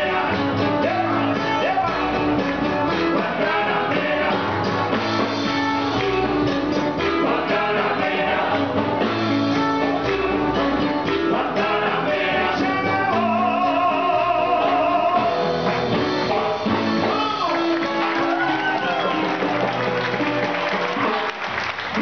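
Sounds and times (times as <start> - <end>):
band playing: 0.0 - 22.0
guitar: 0.0 - 22.0
person singing: 11.2 - 15.4.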